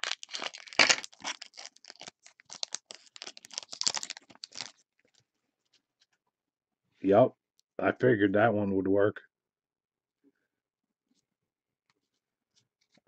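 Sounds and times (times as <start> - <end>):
foil wrapper crinkling and tearing: 0.0 - 4.8.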